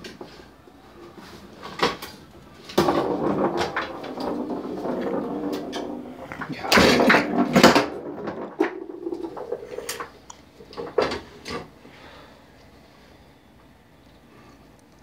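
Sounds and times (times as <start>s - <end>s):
foosball knocks and clatters: 1.6s - 11.7s.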